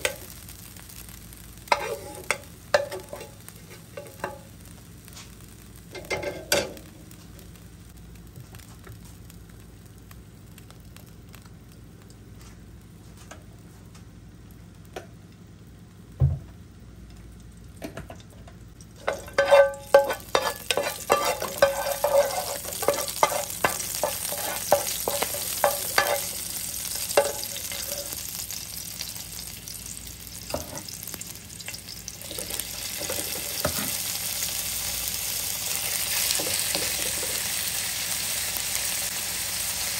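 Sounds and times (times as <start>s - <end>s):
oil sizzling and crackling: 0.0s - 39.9s
metal spoon scraping frying pan: 1.7s - 4.4s, 19.0s - 28.2s.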